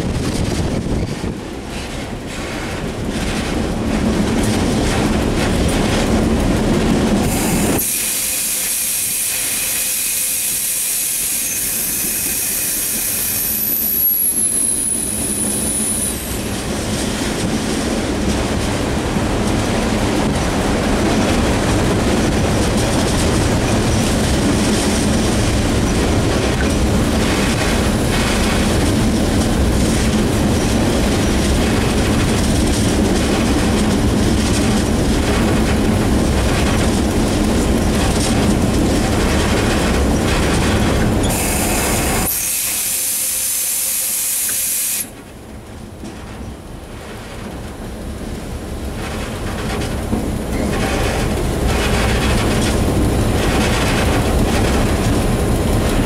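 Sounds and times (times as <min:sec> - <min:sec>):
wheels clattering on rails: 0:00.0 - 0:10.0, 0:11.4 - 0:42.4, 0:45.1 - 0:56.0
diesel locomotive engine: 0:00.0 - 0:56.0
loud air hiss: 0:07.3 - 0:14.1, 0:41.3 - 0:45.1.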